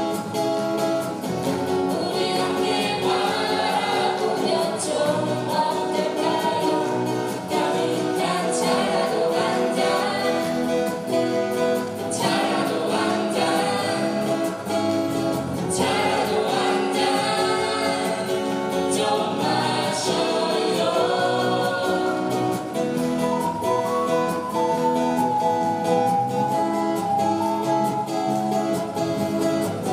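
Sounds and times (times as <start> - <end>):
acoustic guitars strumming: 0.0 - 29.9
electric bass: 0.0 - 29.9
voices singing together: 1.7 - 28.6
ocarina melody: 22.8 - 29.9.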